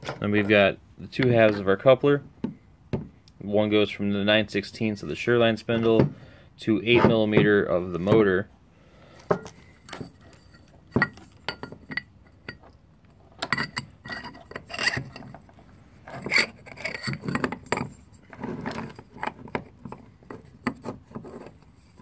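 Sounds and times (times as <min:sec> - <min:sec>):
metal motor parts clinking: 0:09.4 - 0:22.0.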